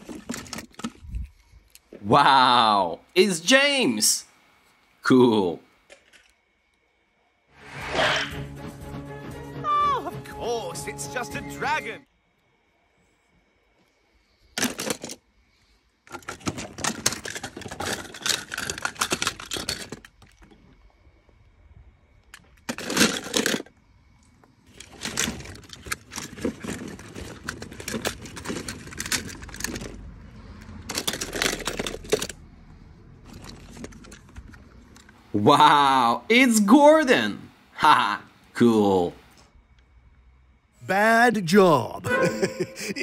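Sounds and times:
toy trains clattering in a tub: 0:00.0 - 0:01.0, 0:14.6 - 0:15.2, 0:16.1 - 0:20.6, 0:22.6 - 0:23.7, 0:24.7 - 0:32.4, 0:33.2 - 0:35.1.

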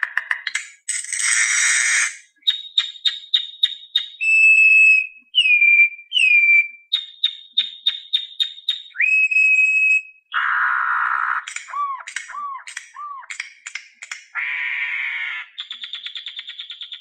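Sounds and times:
music with whistle-like lead: 0:02.4 - 0:10.3, 0:15.6 - 0:17.0.

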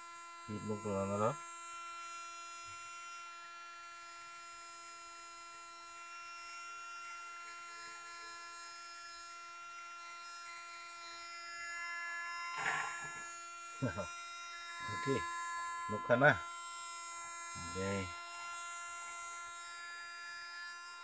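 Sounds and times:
air pump humming: 0:12.5 - 0:16.5, 0:17.5 - 0:18.2.

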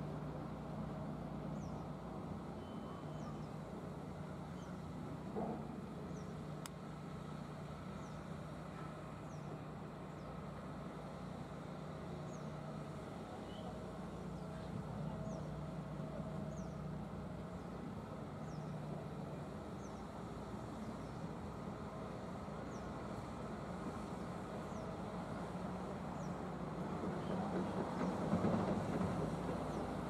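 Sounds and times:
faint short high chirps: 0:02.6 - 0:03.4.

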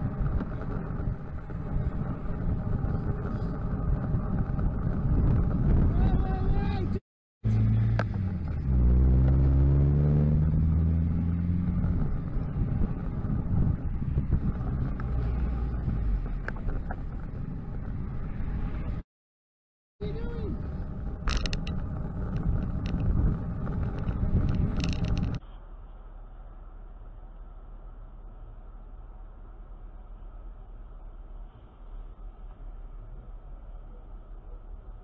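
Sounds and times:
road and wind noise: 0:00.0 - 0:19.1, 0:19.9 - 0:35.0
van engine accelerating: 0:07.4 - 0:19.0.

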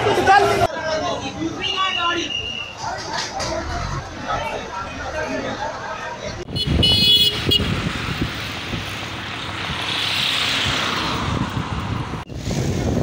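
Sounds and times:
low traffic rumble: 0:00.0 - 0:13.0
vehicle horn: 0:06.5 - 0:07.8
vehicle passing: 0:07.3 - 0:13.0.

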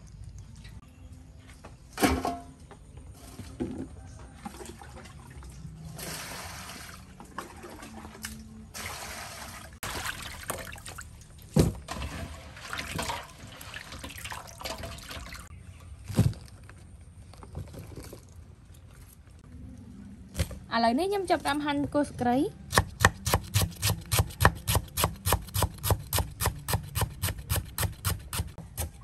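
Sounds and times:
water pouring into metal basin: 0:11.9 - 0:15.5.

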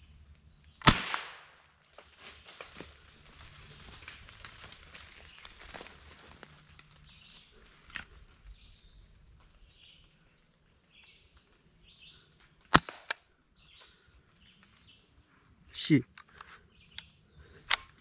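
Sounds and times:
insect drone: 0:00.0 - 0:18.0
air rifle shot: 0:00.8 - 0:01.6, 0:12.7 - 0:13.2
quieter snap: 0:00.8 - 0:01.6, 0:12.7 - 0:13.3
faint chirps: 0:06.2 - 0:18.0.

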